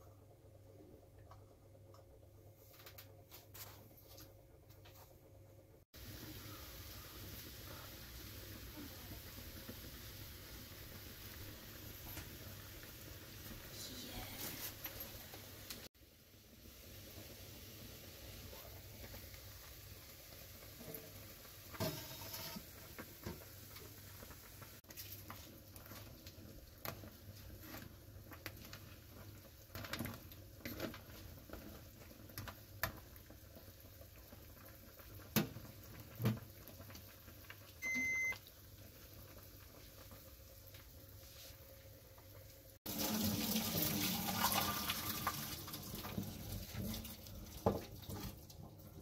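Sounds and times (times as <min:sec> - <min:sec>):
curry bubbling in a pan: 0:06.0 - 0:49.0
electronic cooktop beep: 0:37.8 - 0:38.5.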